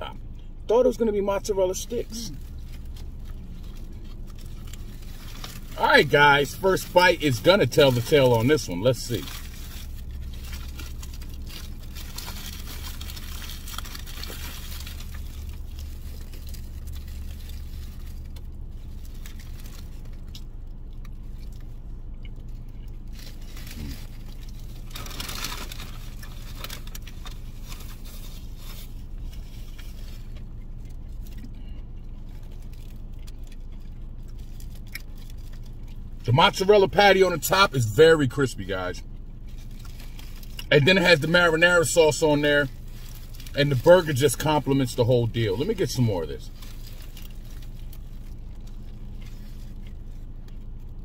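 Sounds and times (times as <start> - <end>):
low hum inside car: 0.0 - 51.0
foil wrapper rustling: 1.7 - 21.8, 22.4 - 51.0
person chewing food: 9.3 - 36.2, 46.5 - 51.0.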